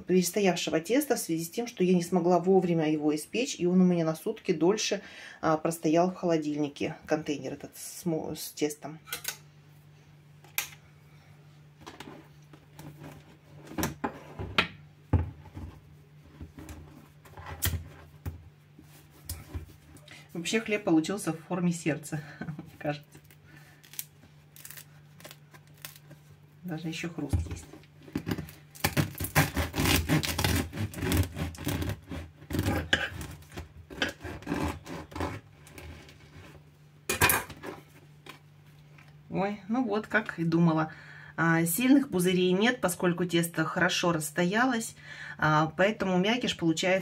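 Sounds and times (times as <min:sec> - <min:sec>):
knife sawing crusty bread: 0:28.9 - 0:36.6.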